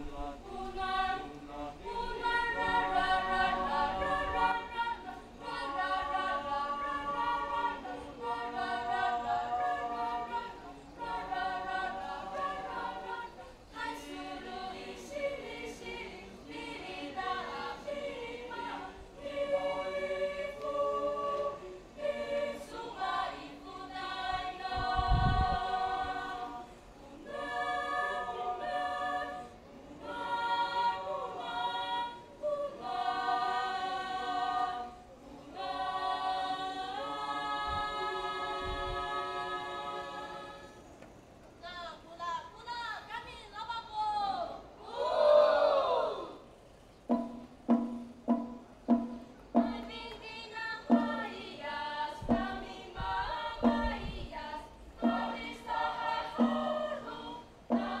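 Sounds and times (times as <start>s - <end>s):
mixed choir singing a cappella: 0.0s - 41.4s, 44.5s - 58.0s.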